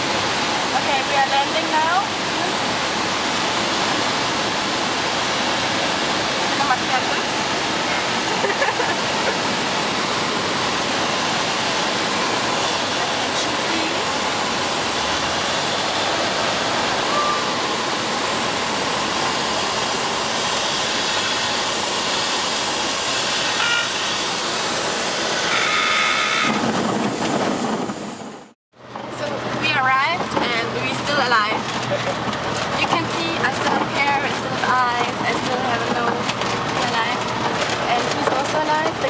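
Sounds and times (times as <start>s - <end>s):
aircraft cabin engine and airflow: 0.0s - 39.0s
stall warning horn tone: 17.0s - 17.7s, 23.4s - 24.2s, 25.5s - 26.6s.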